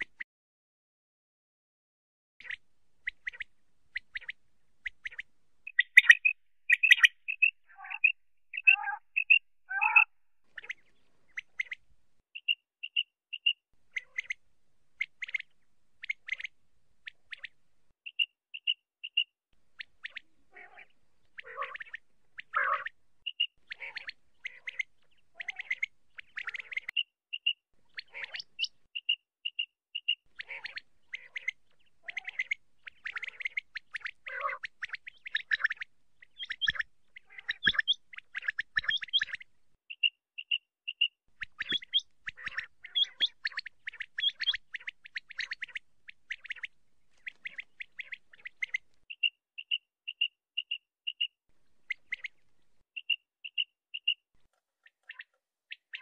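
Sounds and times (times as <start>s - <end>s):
quail buzzy calls: 2.4s - 11.8s, 12.4s - 14.4s, 19.8s - 51.2s
quail whistled calls: 2.4s - 11.8s, 17.3s - 51.3s, 53.0s - 54.2s.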